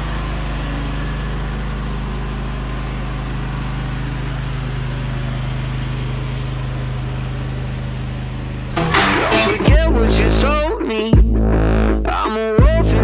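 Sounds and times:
riding mower engine running: 0.0s - 10.4s.

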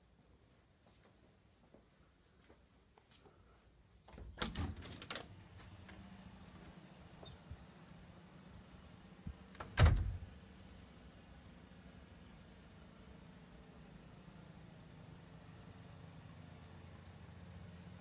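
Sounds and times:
storm door clicks and rattles: 4.1s - 5.4s, 9.6s - 10.3s
faint high hiss: 6.0s - 11.4s
door shutting with bang: 9.5s - 10.3s.

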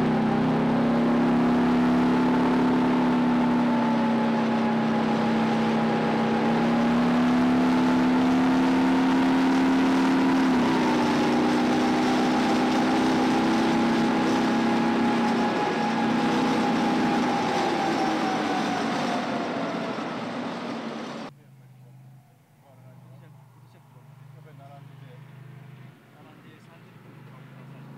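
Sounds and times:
tank diesel engine whine: 0.0s - 21.3s.

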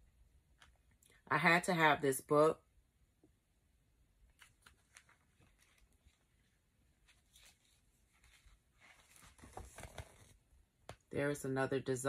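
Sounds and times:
book pages turning: 4.3s - 11.0s.

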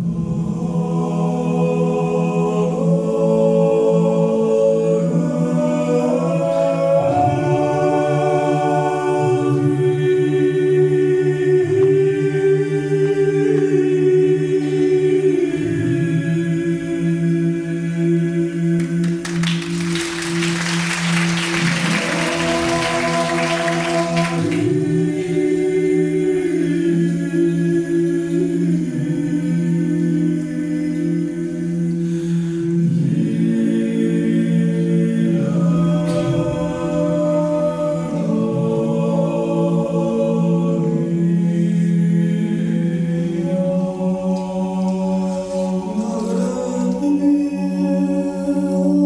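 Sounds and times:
choir singing in harmony: 0.0s - 49.0s
applause: 19.0s - 24.7s.

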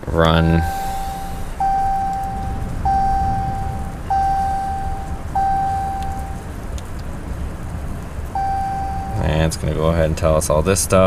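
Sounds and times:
steady low hum: 0.0s - 9.7s
warning chime tone: 0.4s - 6.4s, 8.4s - 9.5s.

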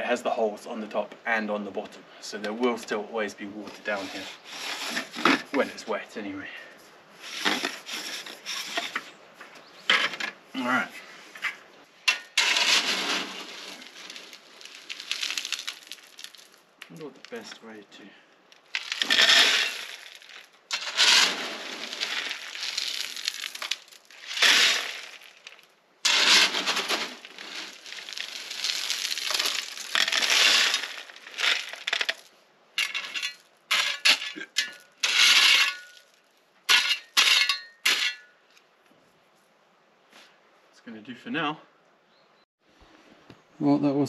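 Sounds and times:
shovel scraping gravel: 3.6s - 5.8s, 7.2s - 9.0s, 9.9s - 10.3s, 12.0s - 16.6s, 18.7s - 38.3s.

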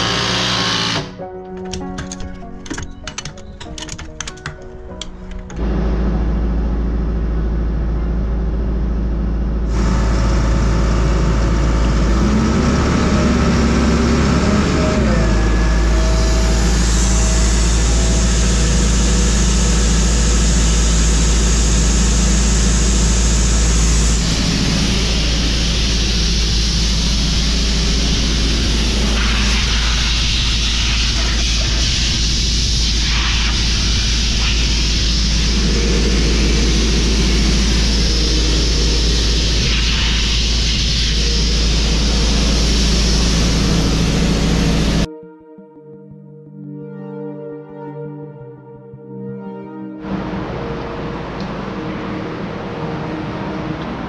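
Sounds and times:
compressor engine drone: 0.0s - 1.9s, 4.9s - 45.1s, 48.9s - 54.0s
compressor hiss: 15.8s - 45.1s.

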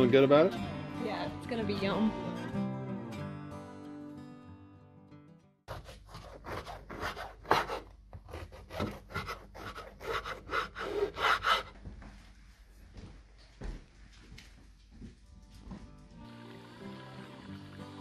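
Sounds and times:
knife sawing through bread: 5.7s - 11.7s.

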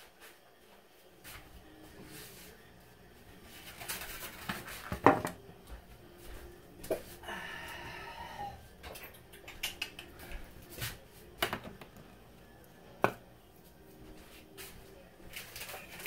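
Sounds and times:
kitchen clicks and knocks: 4.3s - 5.4s.

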